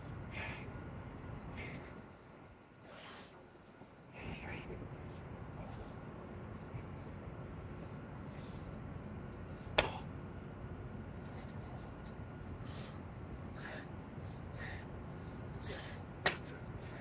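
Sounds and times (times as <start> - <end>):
hard hissing breaths: 0.3 - 0.8, 2.8 - 3.4, 5.5 - 6.2, 6.8 - 8.9, 12.6 - 17.0
hands slapping concrete: 16.2 - 16.5.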